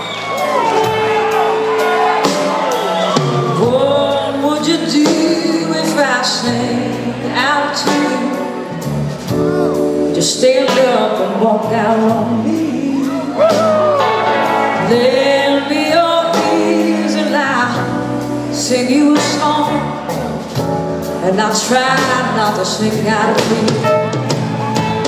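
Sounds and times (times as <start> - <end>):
live rock and soul band playing: 0.0 - 25.0
woman singing: 3.3 - 8.8, 9.8 - 13.7, 14.8 - 24.1.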